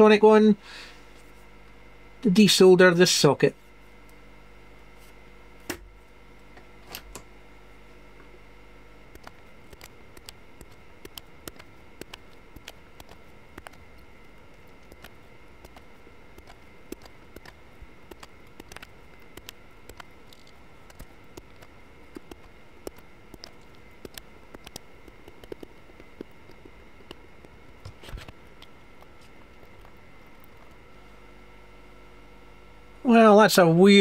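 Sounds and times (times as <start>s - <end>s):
desoldering clicks and crackles: 5.6s - 7.4s, 8.1s - 31.5s.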